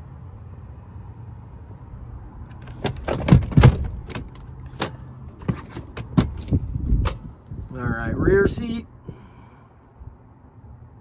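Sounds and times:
clicks knocks and rattles: 2.5 - 7.2.

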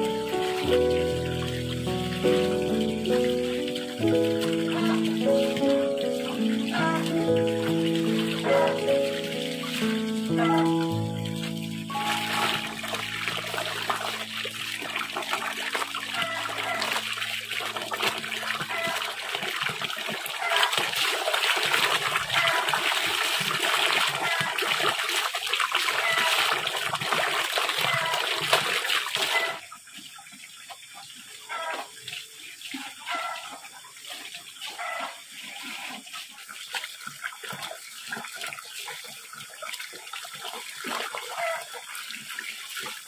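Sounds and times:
water running from a hose: 0.0 - 43.0
clothes splashing in water: 0.6 - 29.6.

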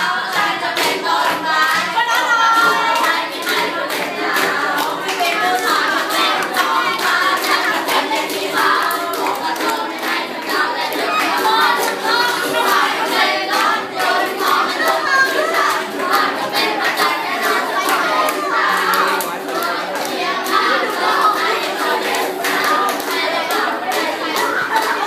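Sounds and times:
group of young voices singing: 0.0 - 25.0
ukulele strumming: 0.0 - 25.0
hand clapping: 2.6 - 20.6, 22.0 - 25.0.

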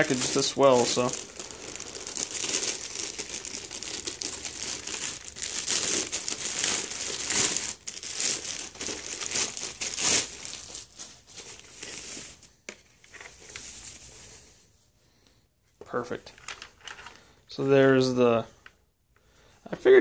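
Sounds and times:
foam sheet rustling: 0.0 - 12.4
plastic bag crinkling: 0.0 - 12.4.

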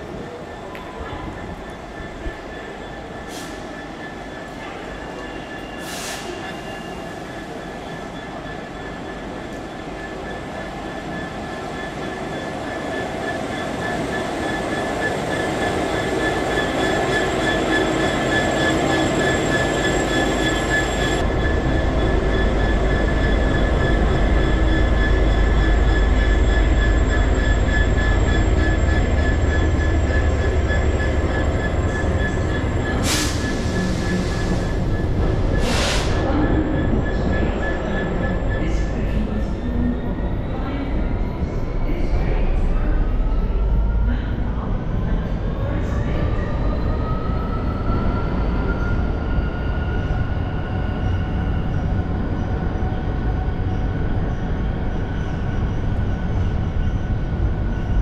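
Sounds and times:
train wheels squealing on rails: 0.0 - 58.0
deep train rumble: 14.4 - 58.0.

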